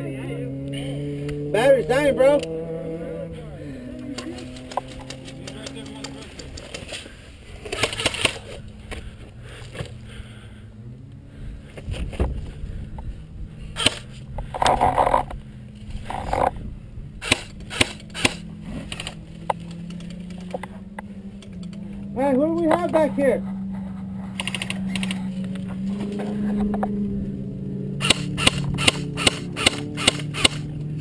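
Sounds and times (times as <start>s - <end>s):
sharp clicks and cracks: 4.2s - 7.0s, 17.2s - 21.8s
airsoft rifle firing bursts: 7.7s - 8.4s, 28.0s - 30.7s.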